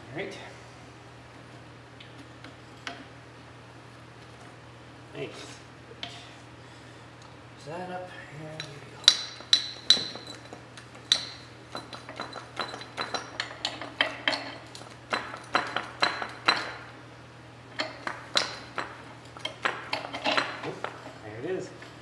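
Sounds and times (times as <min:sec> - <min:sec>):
hand tools clinking on steel: 0:08.6 - 0:16.8.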